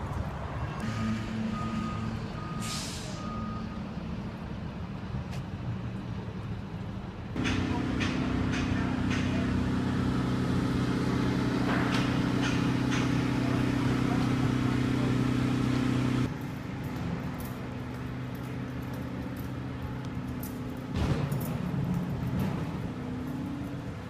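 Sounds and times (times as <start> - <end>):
vehicle engine idling: 7.4 - 24.0.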